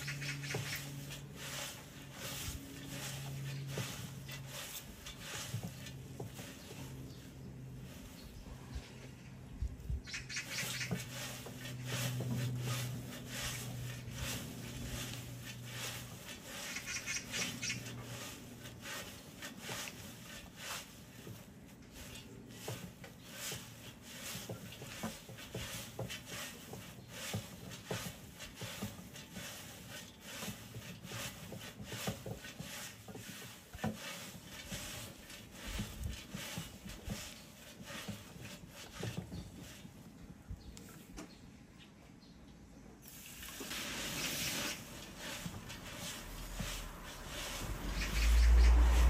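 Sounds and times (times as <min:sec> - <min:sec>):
tea leaves rustling in iron pan: 0:00.1 - 0:08.5, 0:10.4 - 0:40.0, 0:43.1 - 0:49.0.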